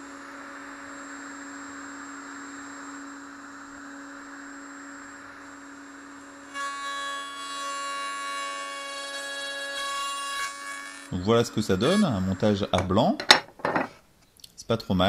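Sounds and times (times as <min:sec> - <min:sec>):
router bit cutting wood: 0:06.4 - 0:13.0
router whining: 0:10.5 - 0:13.0.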